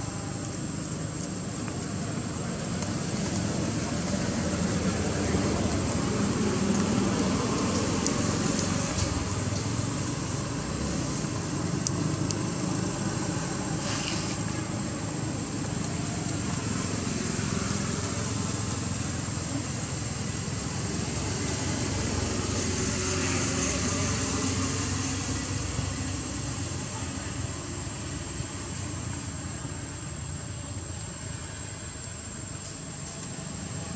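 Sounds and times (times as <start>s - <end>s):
distant traffic rumble: 0.0s - 33.9s.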